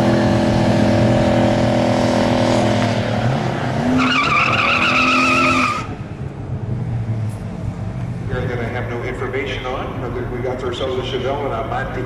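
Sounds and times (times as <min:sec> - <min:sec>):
car engine at high revs: 0:00.0 - 0:08.9
tyres squealing: 0:04.0 - 0:05.9.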